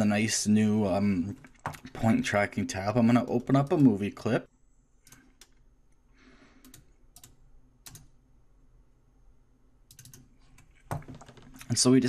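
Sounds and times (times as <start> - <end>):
computer mouse and keyboard clicking: 6.6 - 8.1, 9.9 - 11.8.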